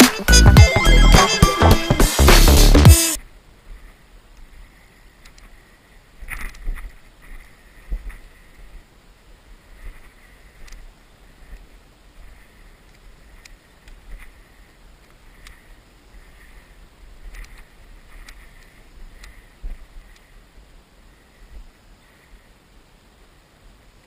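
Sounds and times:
music: 0:00.0 - 0:03.2
footsteps in woodland: 0:03.2 - 0:22.5.

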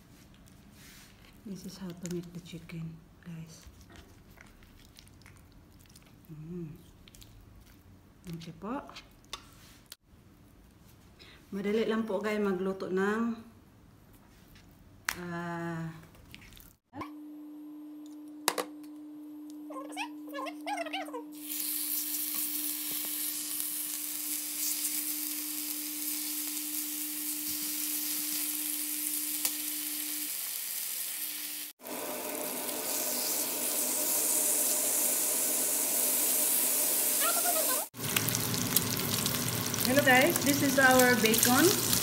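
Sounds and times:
chicken sizzling in a frying pan: 0:21.4 - 0:42.0.

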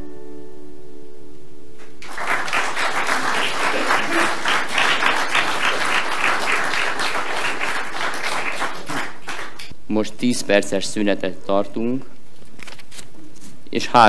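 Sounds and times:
audience applauding: 0:01.8 - 0:09.7.

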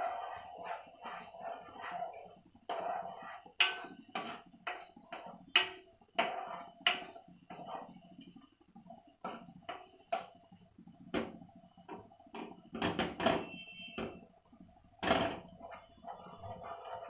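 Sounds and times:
spatula scraping saucepan: 0:00.0 - 0:13.7, 0:15.1 - 0:17.0.

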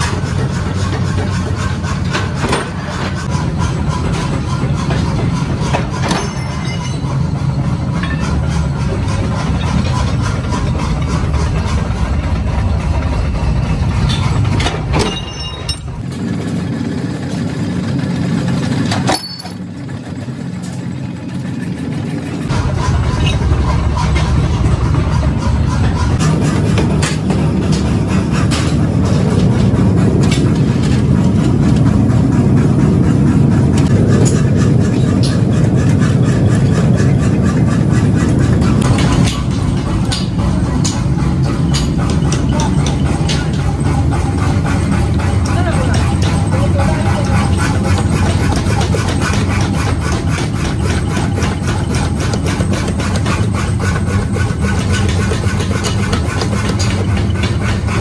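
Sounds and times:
forge furnace fire rumbling: 0:00.0 - 0:58.0
machine low drone: 0:00.0 - 0:58.0
power hammer pounding steel: 0:00.0 - 0:58.0.

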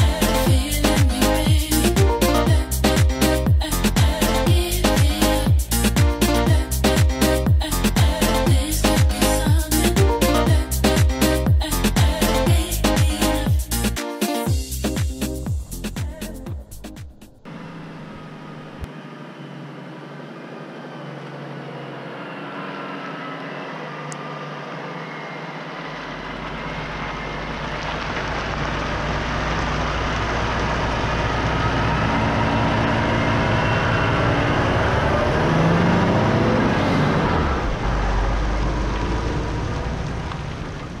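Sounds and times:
truck diesel engine: 0:00.0 - 0:13.9, 0:14.6 - 0:41.0
truck tyres on road: 0:17.4 - 0:41.0.

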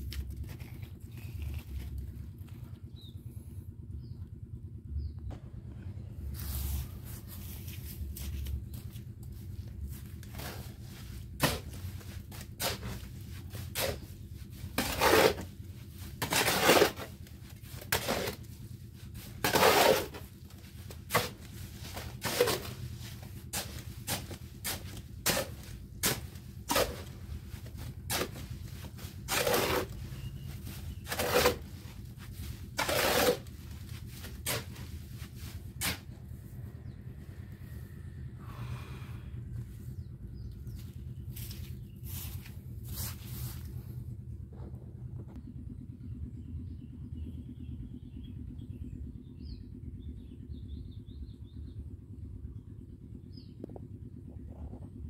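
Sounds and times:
hoe scraping cement mix: 0:06.2 - 0:37.0.

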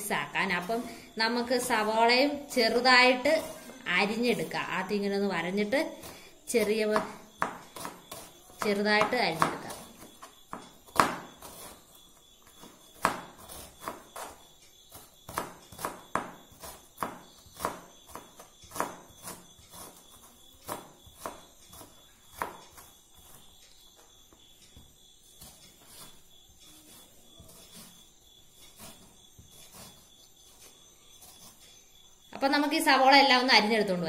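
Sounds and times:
knife chopping on cutting board: 0:07.0 - 0:11.8, 0:15.3 - 0:20.0.

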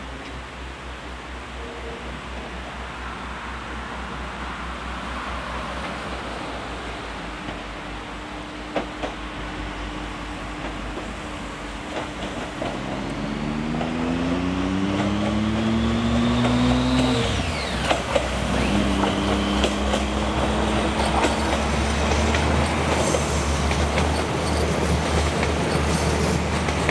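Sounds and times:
diesel train engine accelerating: 0:00.0 - 0:26.9
train rumbling on track: 0:00.0 - 0:26.9.

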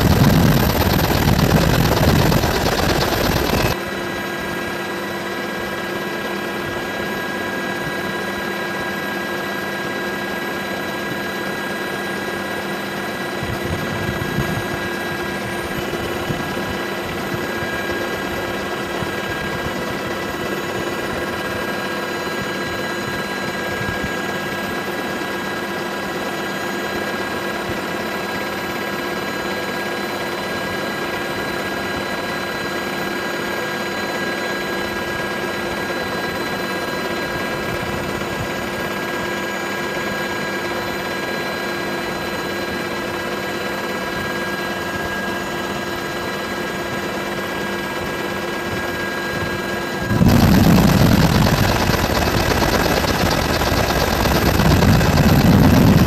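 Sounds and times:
constant high tones: 0:00.0 - 0:03.8
loud rough rush: 0:00.0 - 0:03.8, 0:50.0 - 0:56.0
helicopter drone and turbine whine: 0:00.0 - 0:56.0.

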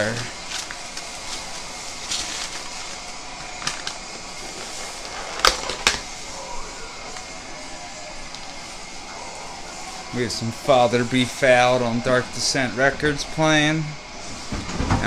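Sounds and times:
foil and plastic crinkling: 0:00.0 - 0:06.3.

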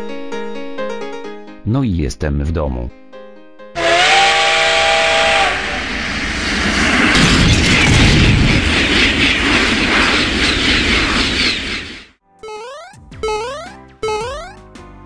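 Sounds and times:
train horn blast: 0:03.8 - 0:06.1
train passing: 0:03.8 - 0:12.2.

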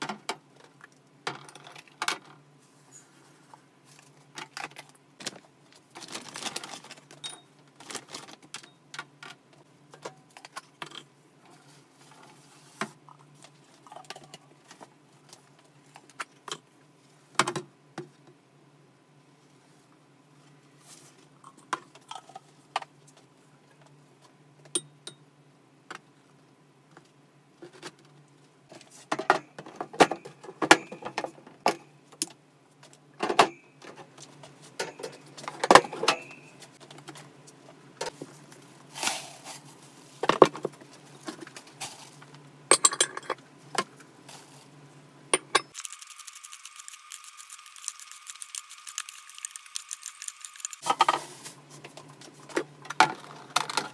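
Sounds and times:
cage parts clicking and rattling: 0:45.6 - 0:51.0.

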